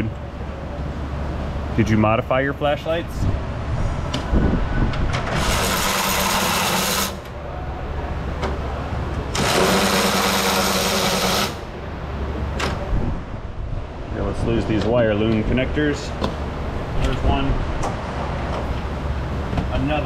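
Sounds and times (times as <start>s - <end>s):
cordless power ratchet running: 5.3s - 7.2s, 9.4s - 11.6s.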